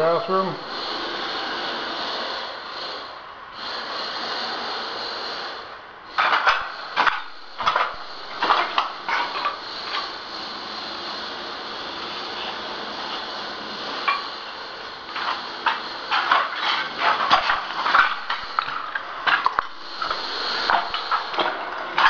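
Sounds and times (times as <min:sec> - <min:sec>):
shards clinking and scraping: 0:15.1 - 0:22.0.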